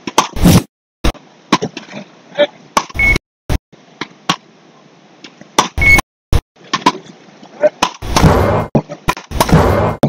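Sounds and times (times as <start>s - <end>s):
short electronic beep: 3.0s - 3.2s, 5.8s - 6.0s.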